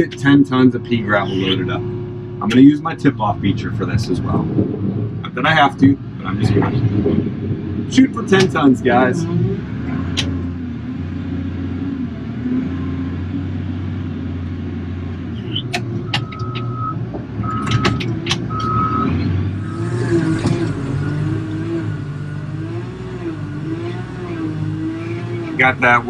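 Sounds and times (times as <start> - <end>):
diesel engine running: 0.0 - 26.0
reverse alarm beeping: 15.4 - 19.1.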